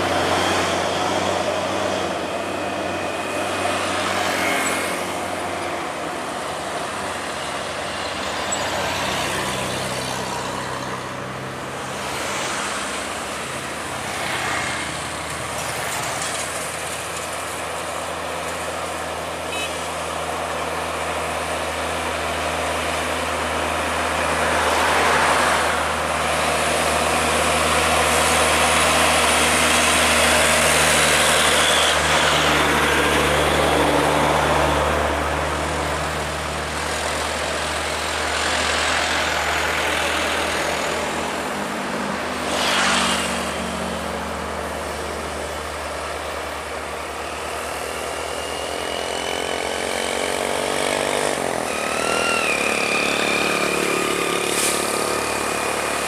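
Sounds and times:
diesel trucks passing: 0.0 - 56.0
tyres on road: 0.0 - 56.0
truck engine revving: 20.3 - 56.0.

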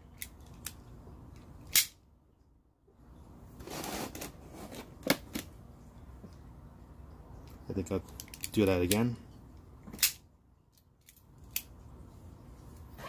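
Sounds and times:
plastic rustling scrape: 3.6 - 5.0.

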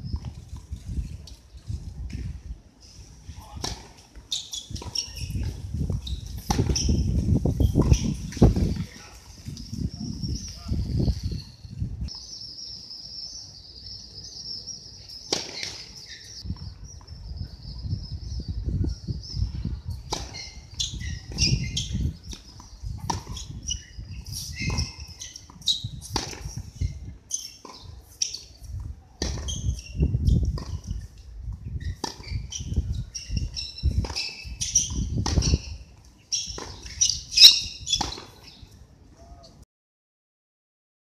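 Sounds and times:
tennis ball struck by racket: 3.6 - 4.0, 6.4 - 6.9, 15.2 - 15.8, 20.1 - 20.4, 22.2 - 23.5, 24.6 - 26.6, 29.2 - 29.7, 31.9 - 32.4, 34.0 - 35.7, 37.9 - 38.5
high chirps or squeaks: 4.3 - 8.2, 20.1 - 22.3, 23.1 - 28.6, 29.4 - 30.7, 31.7 - 38.6
ball bouncing on hard court: 4.8 - 7.0, 37.9 - 38.3.

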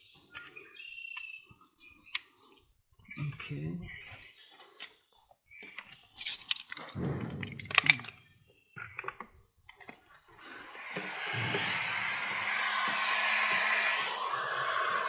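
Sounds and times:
sharp clicks: 5.6 - 10.1
heat gun blowing: 10.4 - 15.0.

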